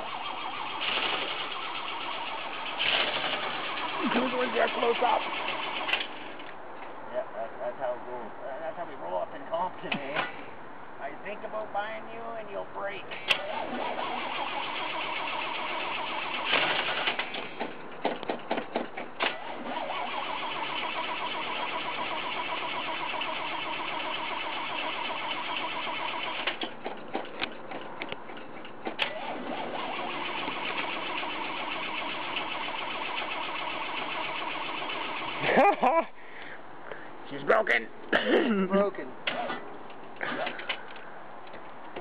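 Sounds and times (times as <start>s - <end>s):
short sharp exhaust bursts: 13.4s - 17.2s, 19.4s - 26.5s.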